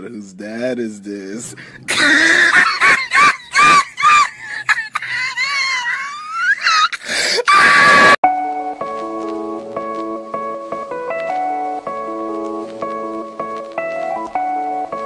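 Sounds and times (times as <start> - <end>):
plucked guitar music: 8.2 - 15.0.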